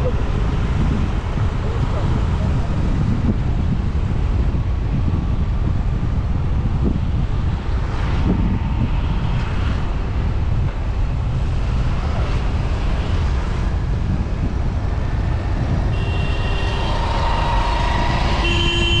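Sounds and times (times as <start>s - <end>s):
road and wind noise: 0.0s - 19.0s
held high steady tone: 15.9s - 19.0s.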